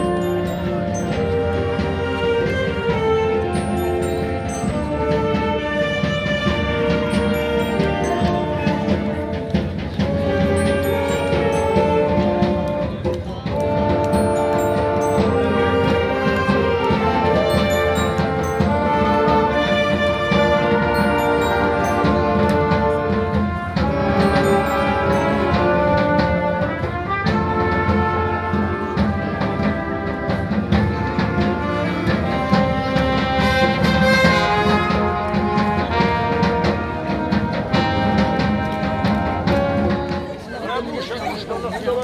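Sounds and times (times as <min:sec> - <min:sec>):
wind band playing: 0:00.0 - 0:42.0.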